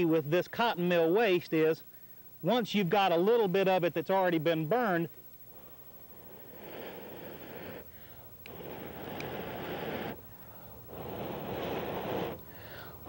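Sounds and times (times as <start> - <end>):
man blowing long breaths: 5.5 - 13.0.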